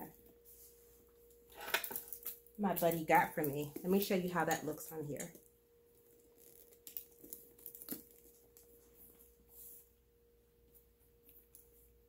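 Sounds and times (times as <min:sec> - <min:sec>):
faint steady hum: 0:00.0 - 0:12.0
soft leather rustle: 0:06.0 - 0:10.0.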